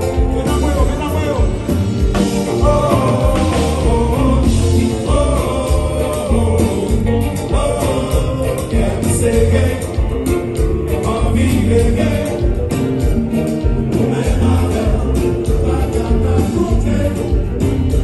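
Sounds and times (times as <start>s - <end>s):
bass: 0.0s - 18.0s
drums: 0.0s - 18.0s
electric guitar: 0.0s - 18.0s
keyboards: 0.0s - 18.0s
man singing into microphone: 2.5s - 10.3s, 10.9s - 12.7s, 13.9s - 17.7s.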